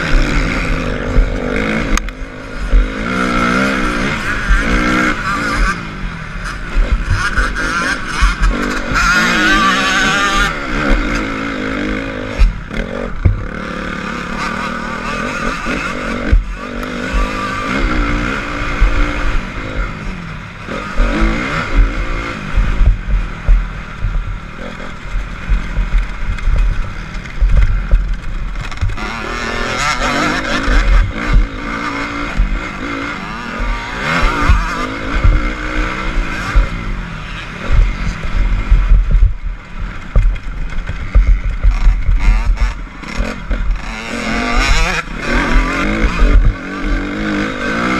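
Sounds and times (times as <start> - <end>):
motorcycle engine revving: 0.0 - 47.9
wind rumbling on microphone: 15.6 - 47.9
knocks from bumps: 21.0 - 29.0, 40.0 - 43.8.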